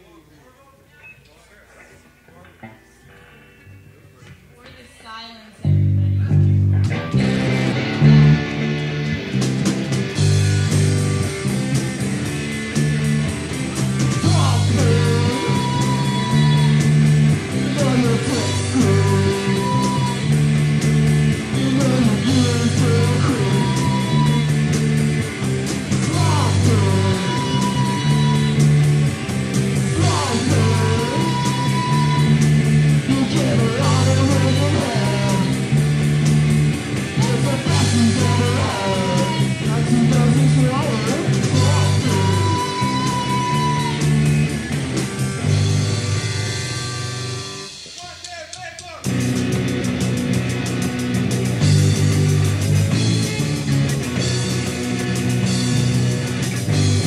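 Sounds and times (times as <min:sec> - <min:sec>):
electric guitar and bass chords: 0:05.6 - 0:47.9, 0:49.0 - 0:57.0
punk rock band playing: 0:05.6 - 0:57.0
drums and cymbals: 0:06.9 - 0:57.0
person singing: 0:14.1 - 0:20.5, 0:21.3 - 0:24.7, 0:25.9 - 0:28.9, 0:29.9 - 0:35.7, 0:37.1 - 0:44.2.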